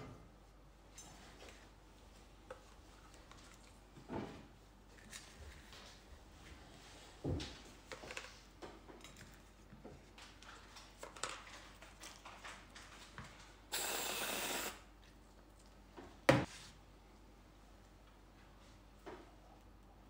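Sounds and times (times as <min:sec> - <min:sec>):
aerosol whipped cream spraying: 0:13.7 - 0:14.8.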